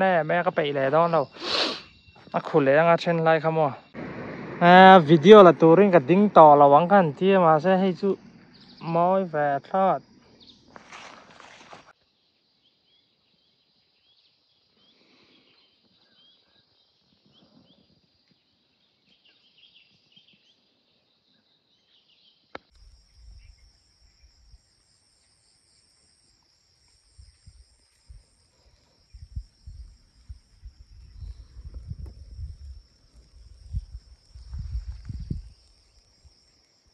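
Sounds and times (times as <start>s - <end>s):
pulsing high insect drone: 0.0s - 11.2s, 22.8s - 36.9s
insects chirping: 0.0s - 36.9s
low rumbles on microphone: 4.0s - 7.2s, 29.1s - 35.6s.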